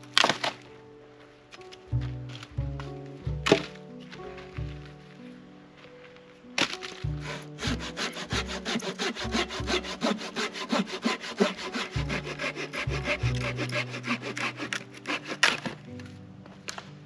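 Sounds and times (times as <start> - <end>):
hand saw cutting branch: 6.6 - 16.0.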